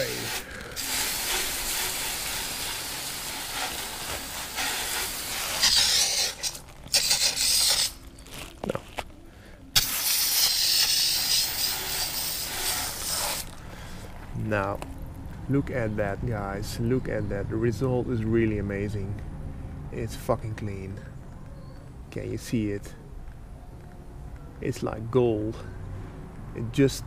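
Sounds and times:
hose nozzle spraying water: 0:00.0 - 0:08.0, 0:09.8 - 0:13.6.

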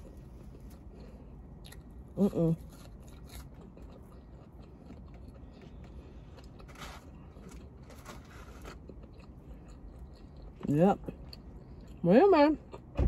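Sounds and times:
chewing with mouth smacks: 0:00.0 - 0:12.9
low steady hum: 0:00.0 - 0:13.0.

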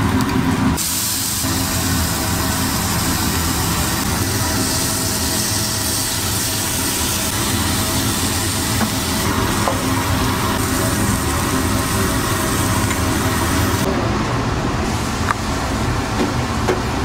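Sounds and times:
food sizzling on a griddle: 0:00.8 - 0:13.9.

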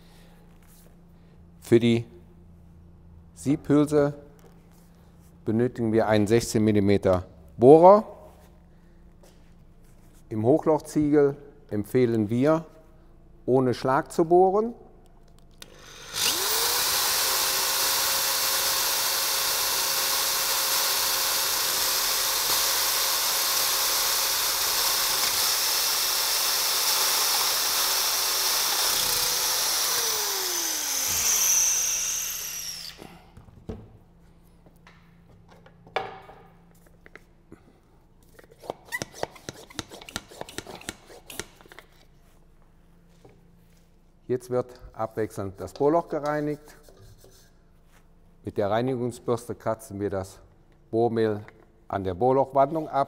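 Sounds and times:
drill whining into brick: 0:15.7 - 0:33.1.

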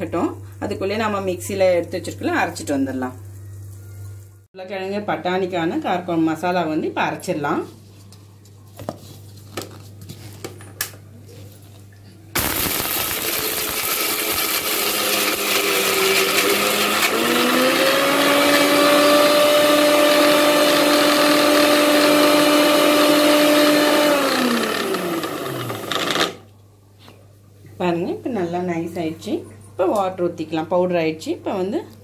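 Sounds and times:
mixer grinder motor grinding: 0:12.4 - 0:26.5.

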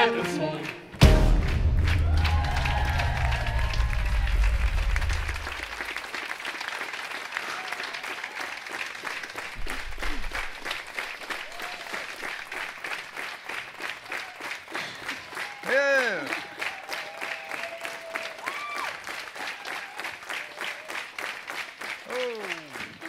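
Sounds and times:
stage music: 0:00.0 - 0:05.9
audience applauding: 0:00.0 - 0:23.0.

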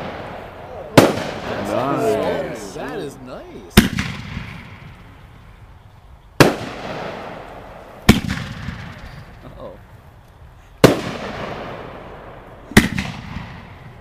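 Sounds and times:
firework shells bursting: 0:03.7 - 0:05.2.

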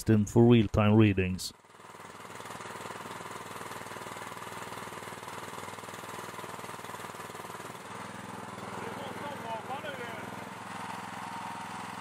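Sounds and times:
small engine running steadily: 0:00.0 - 0:12.0.

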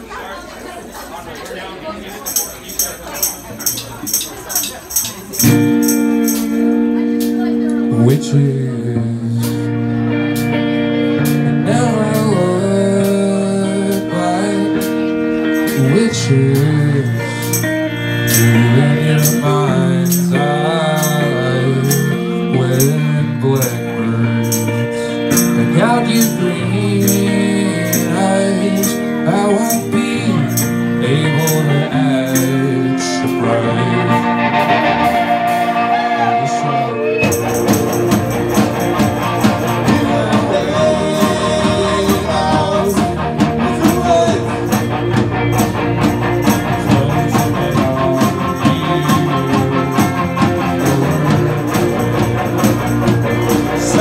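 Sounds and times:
electric guitars: 0:02.2 - 0:54.0
drum kit beat: 0:03.3 - 0:06.8, 0:37.1 - 0:54.0
person singing: 0:11.3 - 0:54.0.

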